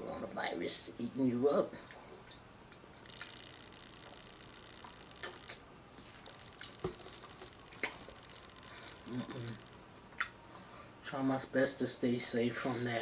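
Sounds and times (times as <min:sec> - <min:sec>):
mouth clicks: 0:04.8 - 0:05.6, 0:06.6 - 0:06.9, 0:07.7 - 0:08.5, 0:09.1 - 0:10.4.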